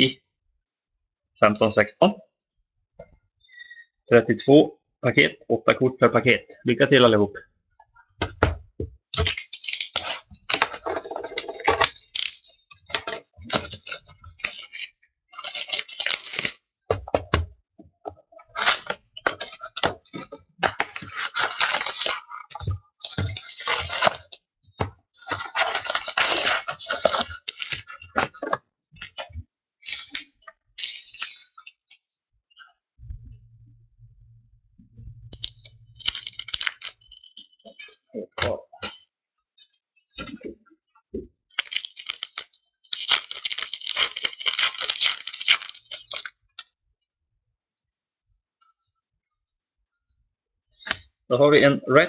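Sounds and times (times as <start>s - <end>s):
wrapping crinkling and tearing: 9.2s - 16.6s, 18.5s - 24.4s, 25.2s - 32.0s, 35.4s - 38.0s, 41.5s - 46.7s.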